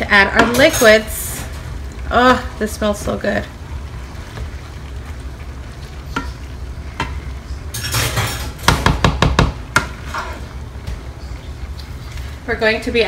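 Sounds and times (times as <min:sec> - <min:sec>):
spatula knocking and scraping pan: 0:06.1 - 0:10.5.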